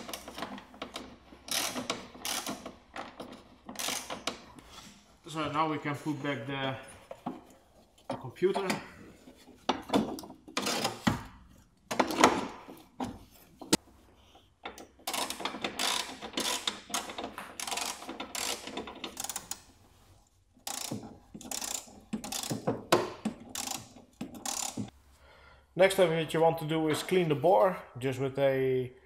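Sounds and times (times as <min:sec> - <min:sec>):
ratchet wrench clicking: 0:01.5 - 0:02.8, 0:03.8 - 0:04.3, 0:15.0 - 0:19.6, 0:20.6 - 0:22.7, 0:23.5 - 0:24.9
metal and plastic parts knocking: 0:09.5 - 0:13.8, 0:20.6 - 0:24.9.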